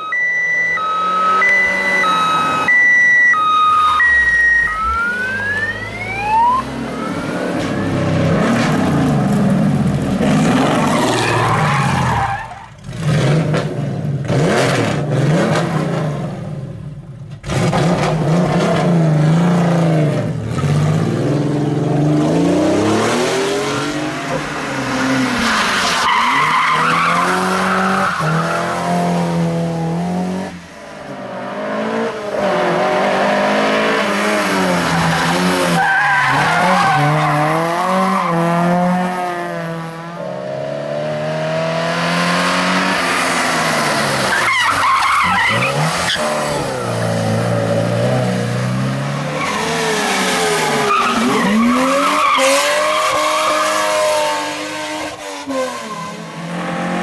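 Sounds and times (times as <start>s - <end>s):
rally car engines revving: 0.0s - 57.0s
tyre squeal: 44.3s - 46.3s.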